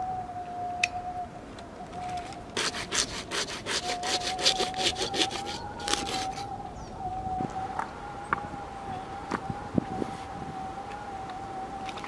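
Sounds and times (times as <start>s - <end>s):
saw rasping through branch: 2.6s - 6.4s.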